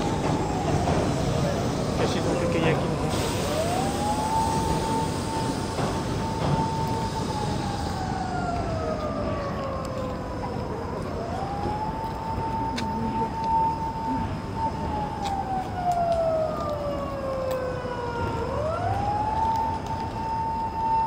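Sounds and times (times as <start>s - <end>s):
ambulance siren wailing: 0.0s - 21.0s
city traffic hum: 0.0s - 21.0s.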